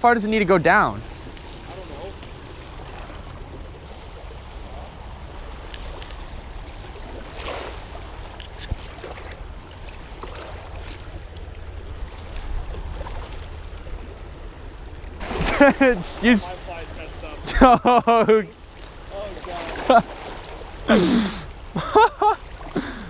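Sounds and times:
river water rushing: 0.0s - 23.0s
wind rumbling on microphone: 1.0s - 17.4s.

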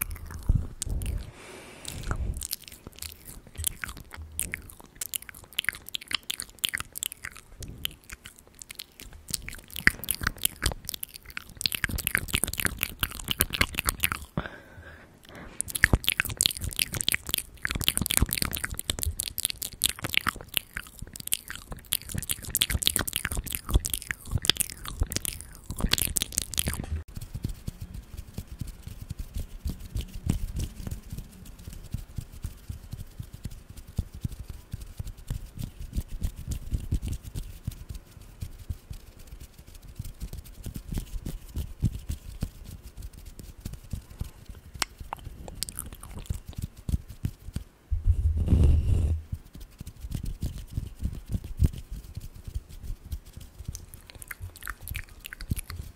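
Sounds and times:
fingers fluttering on foam microphone: 0.0s - 1.3s, 15.7s - 55.9s
low rumble on microphone: 0.0s - 1.4s, 47.9s - 49.5s.

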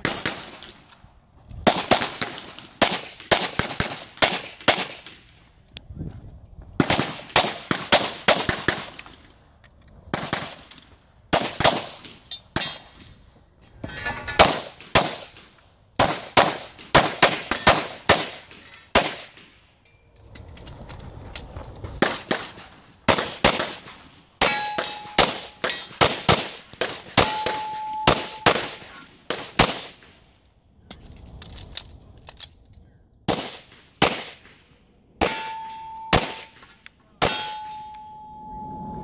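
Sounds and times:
pistol shots: 1.7s - 5.2s, 11.3s - 12.8s, 14.4s - 19.5s, 22.0s - 30.1s, 33.3s - 34.6s, 35.2s - 37.6s.

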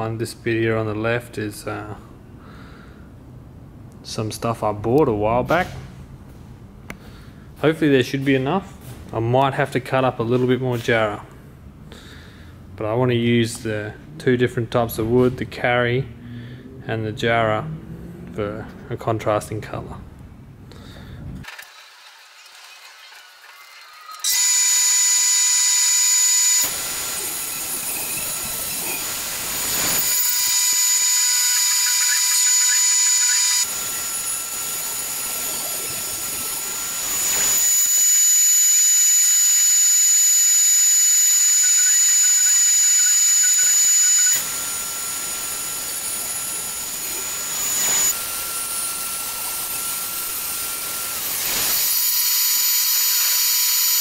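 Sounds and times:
boards cut by jointer: 21.4s - 54.0s
jointer machine whining: 23.1s - 54.0s.

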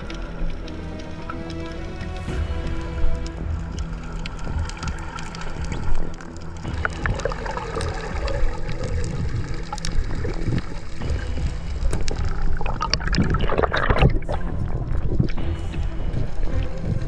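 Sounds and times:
low underwater rumble: 0.0s - 17.0s
water gurgling underwater: 4.7s - 15.4s.

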